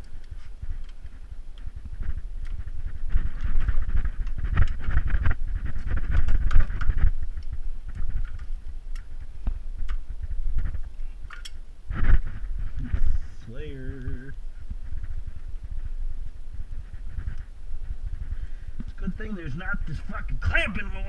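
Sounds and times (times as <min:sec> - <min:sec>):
gloved hands rustling and rubbing: 0:00.0 - 0:21.0
small metal clicks: 0:10.9 - 0:11.6.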